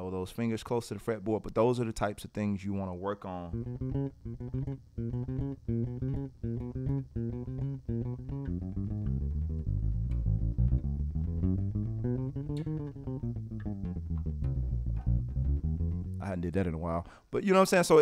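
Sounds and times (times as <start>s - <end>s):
electric bass guitar fingerstyle: 0.0s - 17.2s.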